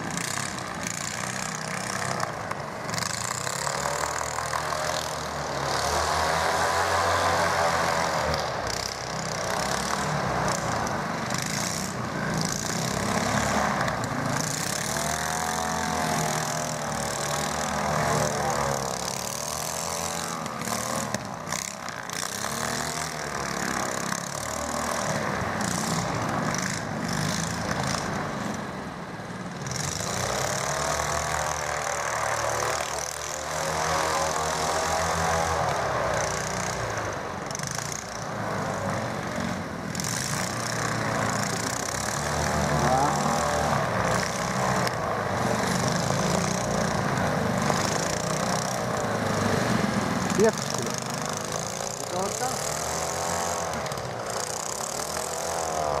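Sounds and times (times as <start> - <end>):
airboat engines running: 34.0 - 56.0.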